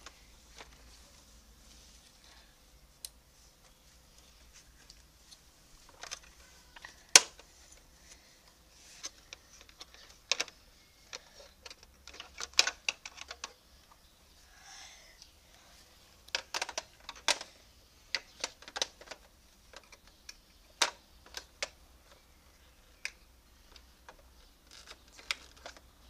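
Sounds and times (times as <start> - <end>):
plastic toy parts clicking: 5.9 - 7.5, 9.0 - 14.0, 16.3 - 17.5, 18.1 - 21.8, 22.9 - 25.9.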